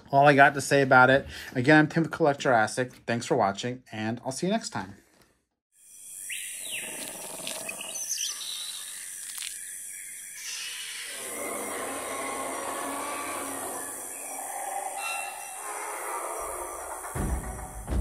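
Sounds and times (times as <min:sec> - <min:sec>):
bird chirps and calls: 0:06.2 - 0:16.0
animal roar: 0:10.6 - 0:17.7.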